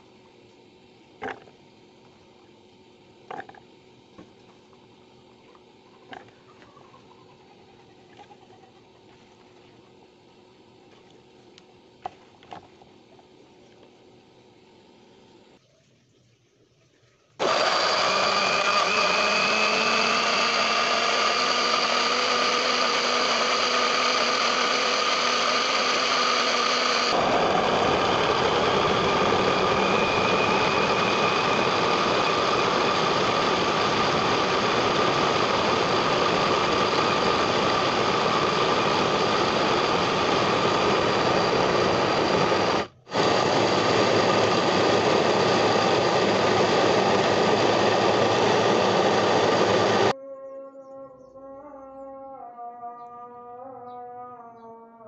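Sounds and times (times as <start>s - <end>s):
blender motor running: 17.4s - 50.2s.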